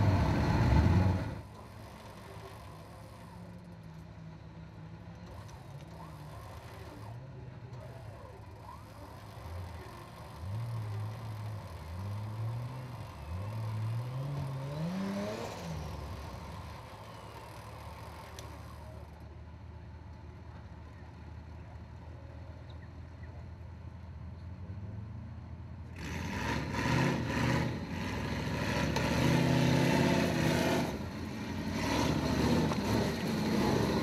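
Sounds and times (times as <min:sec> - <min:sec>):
truck engine revving: 0:00.0 - 0:03.4, 0:07.8 - 0:19.2, 0:25.9 - 0:34.0.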